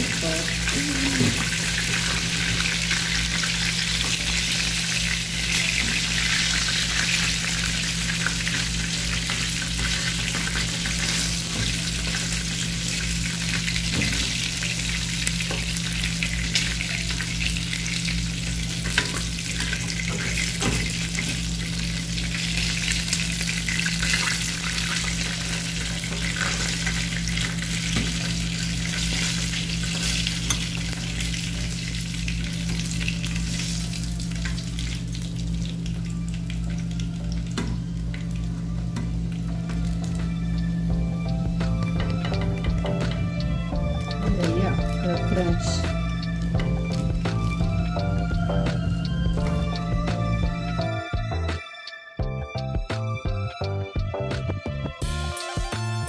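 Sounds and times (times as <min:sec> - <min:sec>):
chicken sizzling in hot oil: 0:00.0 - 0:50.8.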